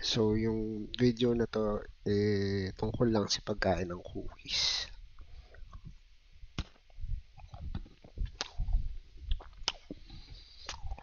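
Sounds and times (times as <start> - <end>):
cookie chewing: 6.6 - 11.0.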